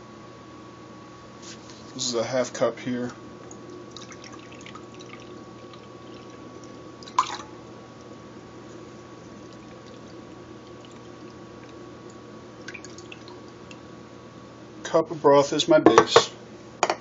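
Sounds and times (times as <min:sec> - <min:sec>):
liquid pouring into a cup: 0:03.4 - 0:13.9.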